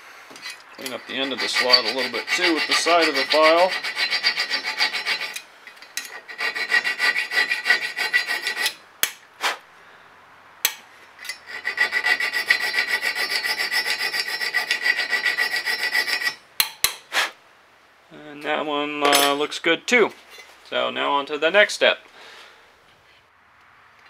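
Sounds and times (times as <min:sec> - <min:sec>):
hand file filing steel: 0:00.3 - 0:05.4, 0:06.0 - 0:09.6, 0:11.3 - 0:16.4.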